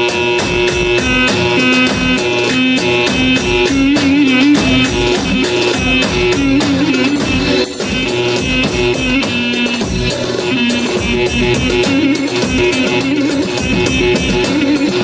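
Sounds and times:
ornamented bagpipe melody: 0.0s - 15.0s
steady drum beat: 0.0s - 15.0s.

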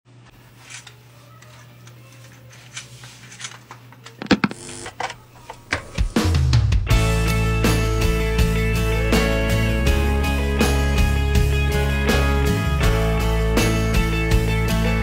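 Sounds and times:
electrical hum: 0.1s - 6.4s
cable plugging click and buzz: 4.2s - 6.1s.

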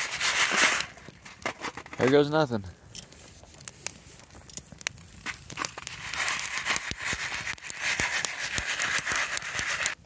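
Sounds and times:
foil crinkling: 0.0s - 2.4s, 3.1s - 10.0s
campfire crackling and popping: 0.0s - 10.0s
steady hiss: 2.2s - 10.0s.

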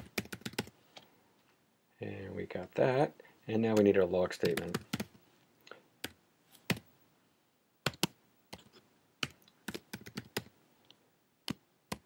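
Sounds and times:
computer keyboard typing: 0.0s - 0.8s, 3.7s - 5.2s, 7.8s - 10.5s.

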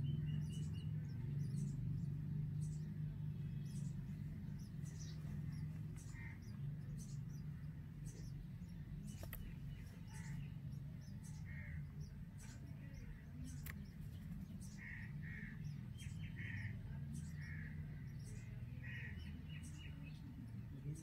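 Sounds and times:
nestlings begging calls: 0.0s - 21.0s
steady low hum: 0.0s - 21.0s.

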